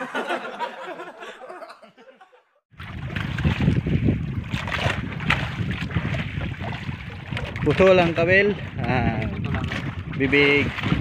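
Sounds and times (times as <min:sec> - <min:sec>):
men laughing: 0:00.0 - 0:02.6
wind buffeting microphone: 0:02.7 - 0:11.0
water splashing against boat: 0:02.8 - 0:11.0.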